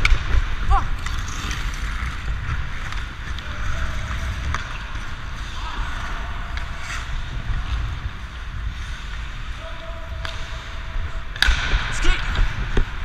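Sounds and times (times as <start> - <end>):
skate blades scraping ice: 1.0 - 9.6.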